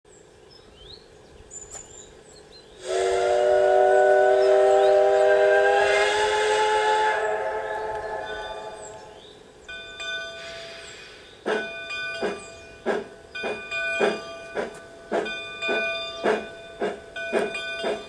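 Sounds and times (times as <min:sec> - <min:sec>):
model train steam whistle: 0:02.8 - 0:09.1.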